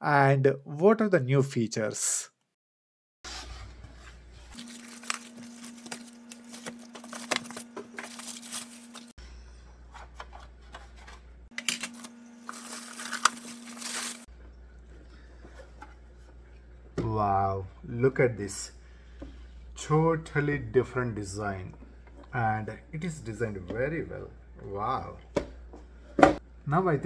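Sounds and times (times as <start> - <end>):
plastic bag rustling: 4.2 - 9.1, 10.9 - 14.3.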